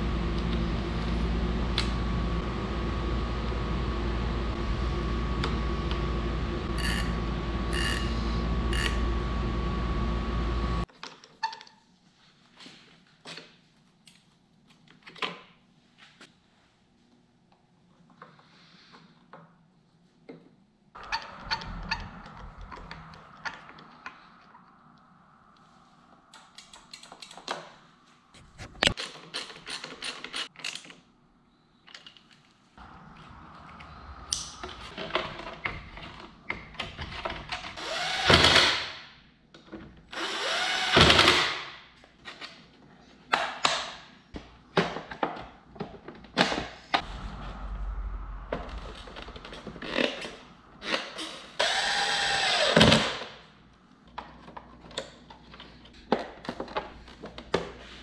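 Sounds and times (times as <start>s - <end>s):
cordless drill driving bolts: 37.8s - 38.8s, 40.1s - 41.6s, 50.8s - 53.2s.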